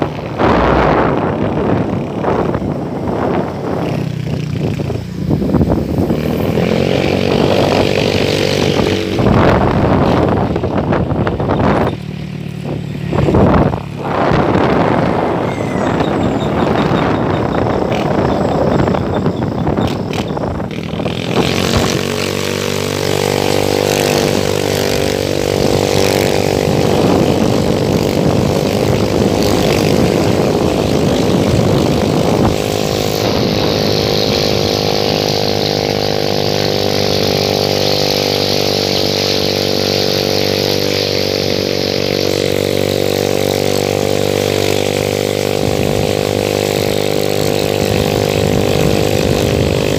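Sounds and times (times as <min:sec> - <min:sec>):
loud rushing noise: 0:00.0 - 0:11.6, 0:12.7 - 0:18.2
motorcycle engine droning: 0:00.0 - 0:49.9.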